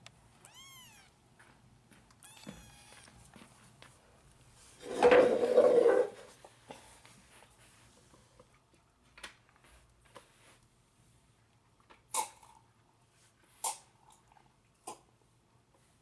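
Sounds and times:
kittens mewing: 0.4s - 1.2s, 2.2s - 3.3s.

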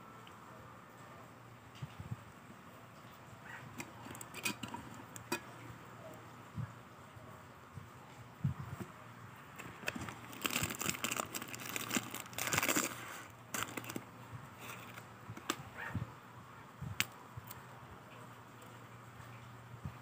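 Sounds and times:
foil packets crinkling: 9.5s - 15.6s.

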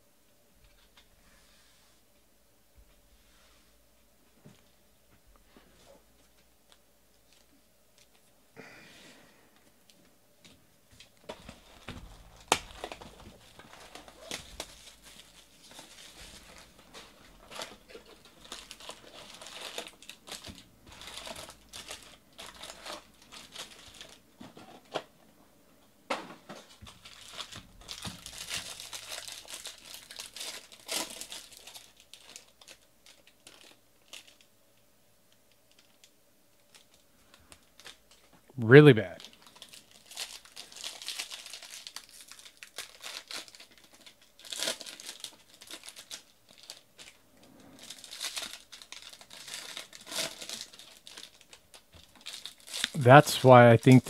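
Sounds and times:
foil wrappers crinkling and tearing: 11.1s - 25.0s, 26.5s - 34.5s, 35.7s - 38.3s, 39.2s - 54.0s.

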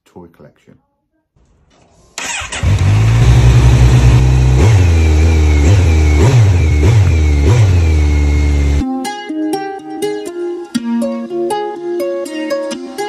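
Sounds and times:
motorcycle engine revving: 2.2s - 8.8s.

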